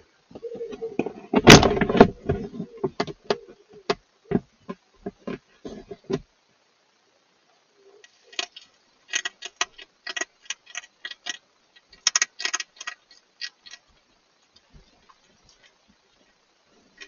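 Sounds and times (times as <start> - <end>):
hedgehog crunching dry food: 8.1 - 15.8.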